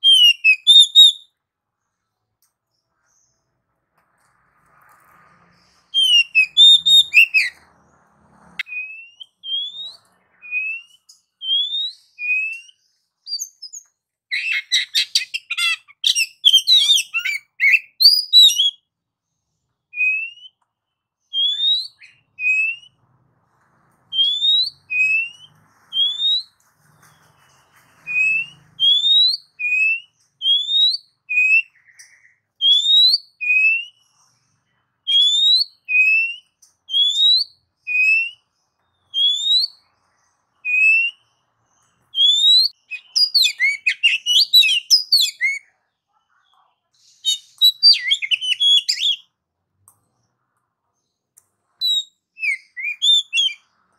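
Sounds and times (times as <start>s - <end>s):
bird singing whistled notes: 0.0s - 1.4s, 5.5s - 7.7s, 8.6s - 18.9s, 19.9s - 20.6s, 21.2s - 23.0s, 24.1s - 34.4s, 35.1s - 45.7s, 47.2s - 49.3s, 51.8s - 53.7s.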